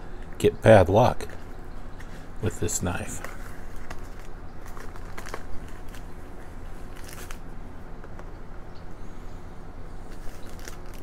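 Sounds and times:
packaging rustling: 3.0 - 8.3, 10.0 - 11.0.

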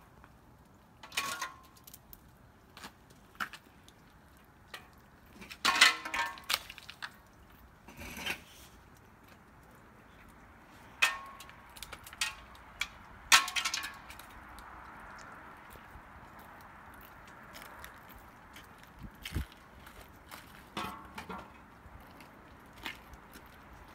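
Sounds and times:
icicles crashing: 10.9 - 14.9.

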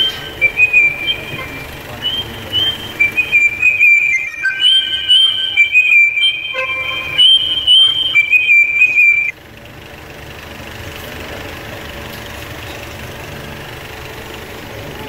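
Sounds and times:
loud high whistle-like tone: 0.0 - 9.4
low background hum: 0.0 - 15.0.

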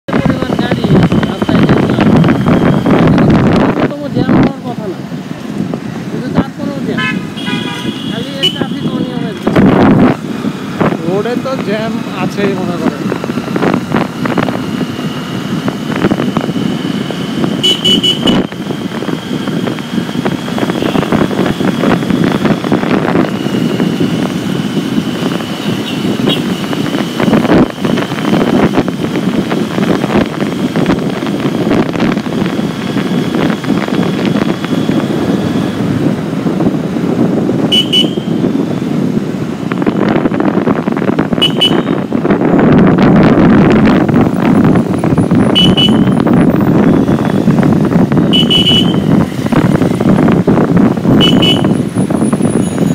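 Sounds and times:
motorcycle engine: 0.0 - 52.9
road noise: 0.0 - 52.9
short horn toots: 7.0 - 8.2, 41.4 - 42.0, 45.5 - 46.2, 48.3 - 49.1.

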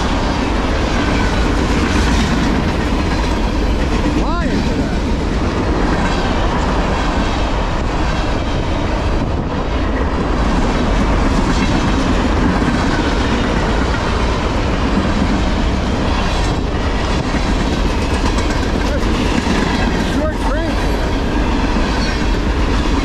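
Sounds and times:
freight train rumbling past: 0.0 - 23.0.

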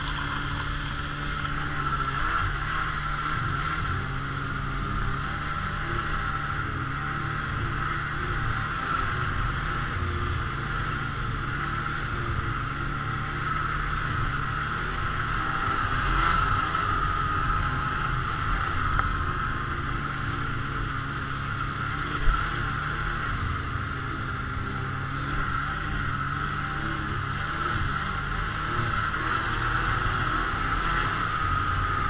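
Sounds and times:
snowmobile engine running: 0.0 - 32.0.

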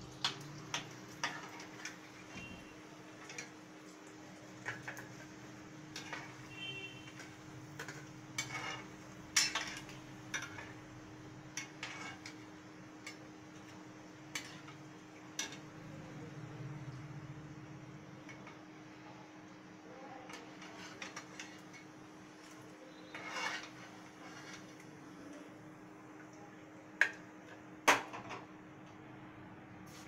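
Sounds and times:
food frying in oil: 0.0 - 27.8
metal spoon scraping pan: 0.7 - 3.6, 5.9 - 10.8, 11.5 - 13.7, 14.3 - 14.8, 20.3 - 21.9, 22.9 - 24.8.

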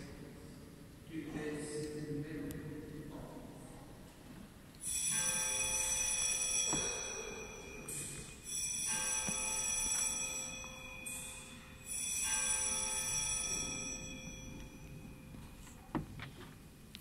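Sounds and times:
bell ringing: 4.8 - 15.6.

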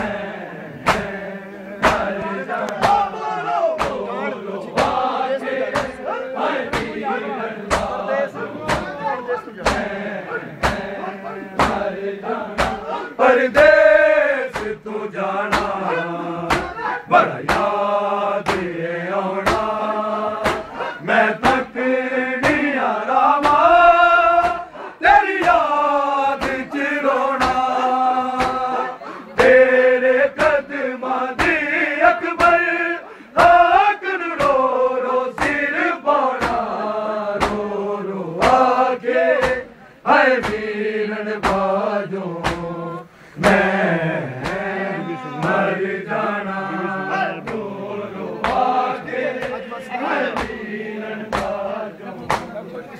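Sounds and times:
men chanting a lament: 0.0 - 52.9
hands slapping chests: 0.8 - 1.2, 1.8 - 3.1, 3.8 - 4.1, 4.7 - 5.1, 5.7 - 7.0, 7.7 - 8.0, 8.6 - 9.0, 9.6 - 10.0, 10.6 - 11.0, 11.6 - 13.8, 14.5 - 14.8, 15.5 - 17.8, 18.4 - 18.8, 19.4 - 19.8, 20.4 - 21.7, 22.4 - 22.8, 23.4 - 23.8, 24.4 - 24.6, 25.3 - 26.7, 27.4 - 27.8, 28.4 - 28.7, 30.4 - 30.6, 31.4 - 31.6, 32.4 - 32.7, 33.4 - 33.6, 34.4 - 34.7, 35.4 - 35.7, 36.3 - 36.8, 37.4 - 37.7, 38.4 - 38.8, 39.4 - 39.7, 40.3 - 40.7, 41.4 - 41.7, 42.4 - 42.7, 43.4 - 44.7, 45.4 - 45.7, 47.4 - 47.7, 48.4 - 48.8, 50.3 - 50.7, 51.3 - 51.6, 52.2 - 52.6.

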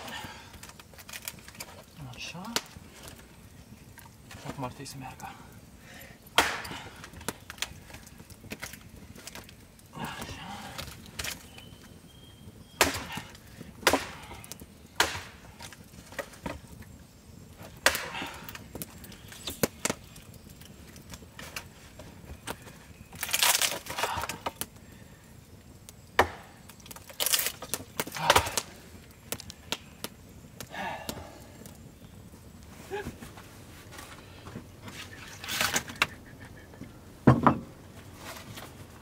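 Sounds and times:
wood cracking and splintering: 0.0 - 11.9, 12.8 - 16.8, 17.6 - 25.2, 26.2 - 31.6.

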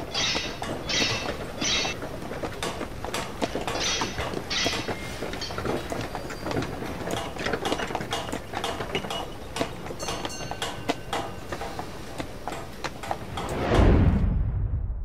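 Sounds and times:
high squeals: 0.0 - 2.0
train wagons rattling and clanking: 0.0 - 13.8.

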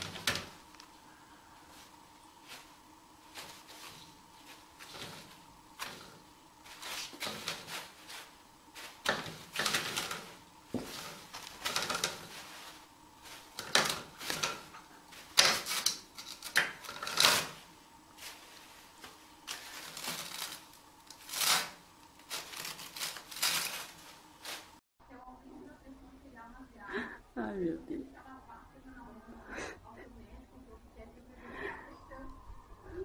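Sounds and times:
paper rustling and crumpling: 0.0 - 0.7, 1.7 - 24.8
toilet roll spinning: 0.0 - 0.8, 3.4 - 24.8.

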